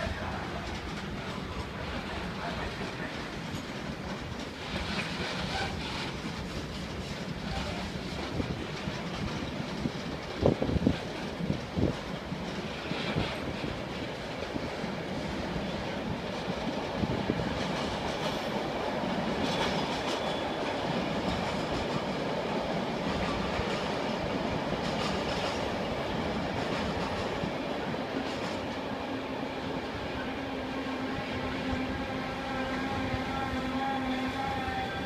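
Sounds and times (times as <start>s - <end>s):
train wheels rumbling on rails: 0.0s - 35.0s
clicks of wheels on rails: 0.4s - 14.8s, 22.8s - 27.6s, 28.2s - 28.8s.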